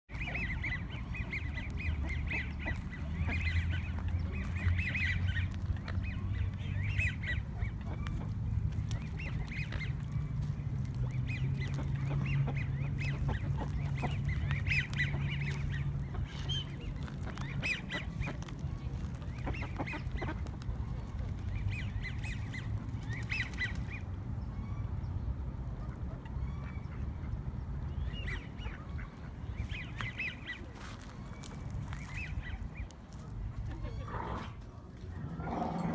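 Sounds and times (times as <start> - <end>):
ducks quacking: 0.1 - 23.8
steady low rumble: 0.2 - 33.9.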